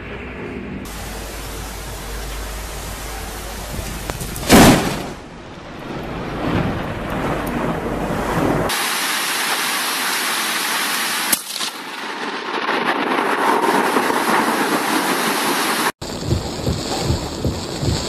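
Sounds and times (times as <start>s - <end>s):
heavy rain: 0.9s - 18.0s
thunder crack: 3.6s - 8.8s, 12.0s - 18.0s
rain on car windscreen: 13.2s - 18.0s
wind buffeting microphone: 16.0s - 18.0s.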